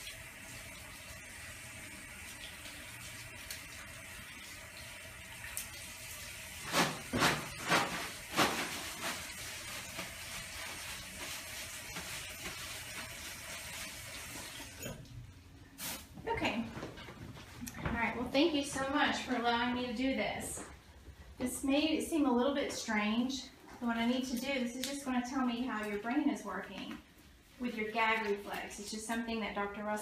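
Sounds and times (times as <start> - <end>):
tap water running into sink: 0.0 - 14.8.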